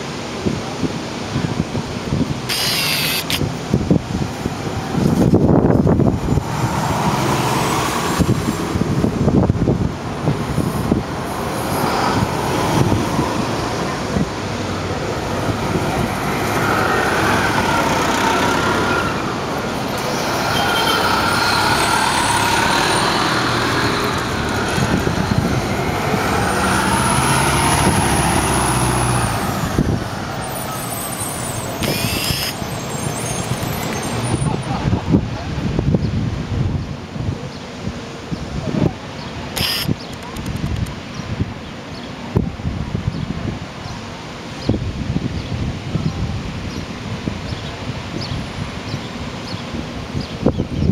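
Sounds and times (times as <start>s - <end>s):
street traffic: 0.0s - 50.9s
buses driving past: 2.6s - 35.5s.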